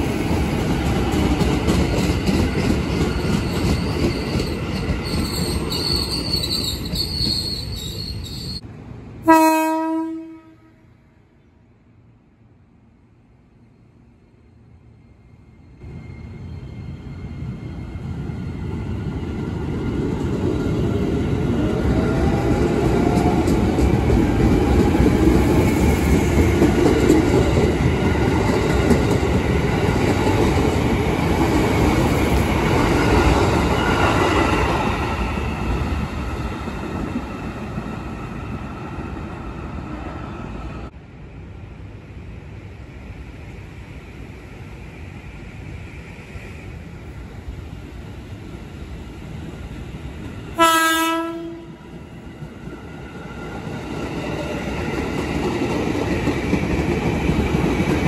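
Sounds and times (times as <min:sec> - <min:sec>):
train rumbling on rails: 0:00.0 - 0:58.0.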